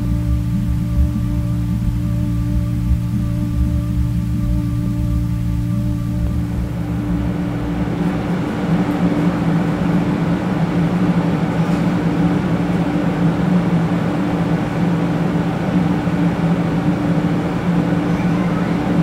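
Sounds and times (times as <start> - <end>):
air-conditioning hum: 0.0 - 19.0.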